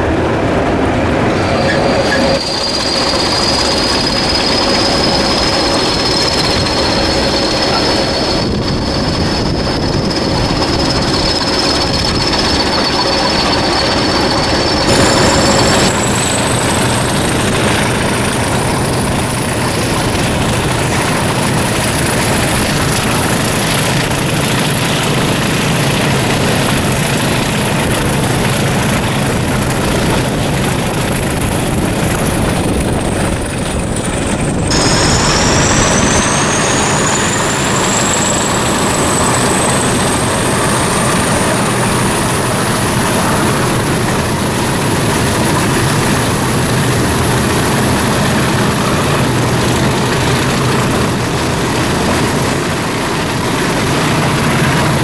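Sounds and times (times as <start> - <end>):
diesel locomotive engine: 0.0 - 55.0
turbocharger whistle: 1.4 - 28.6, 34.6 - 44.1.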